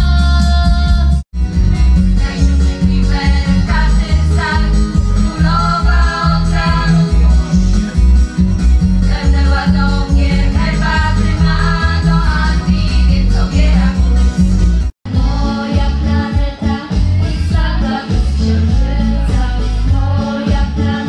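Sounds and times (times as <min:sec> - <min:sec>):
amplified accompaniment with bass: 0:00.0 - 0:21.0
women singing together: 0:02.1 - 0:07.3, 0:09.0 - 0:14.4, 0:15.1 - 0:21.0.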